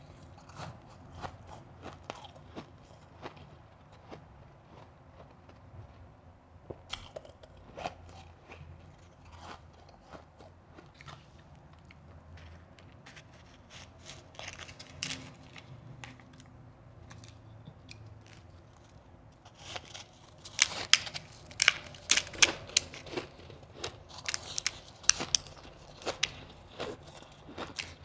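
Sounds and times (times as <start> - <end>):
ice being chewed: 0.0 - 6.0, 6.9 - 16.5, 17.1 - 28.0
fingers scooping shaved ice: 12.4 - 16.4, 18.2 - 28.0.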